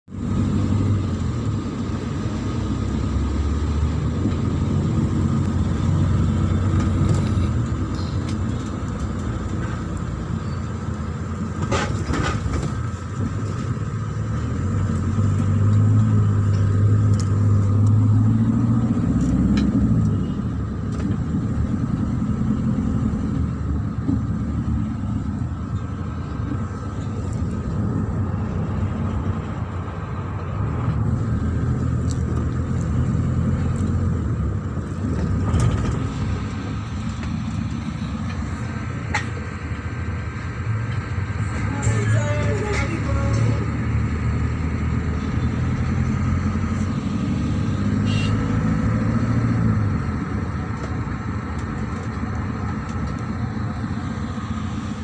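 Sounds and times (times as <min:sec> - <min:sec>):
minibus engine and road rumble: 0:00.0 - 0:55.0.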